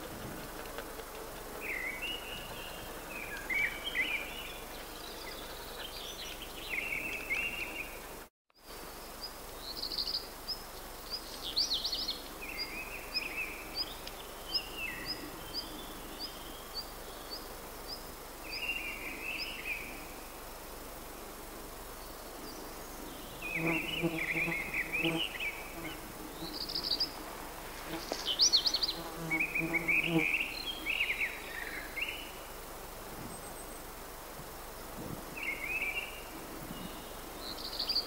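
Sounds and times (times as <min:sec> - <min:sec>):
songbirds warbling: 0:01.6 - 0:08.2, 0:27.8 - 0:32.6.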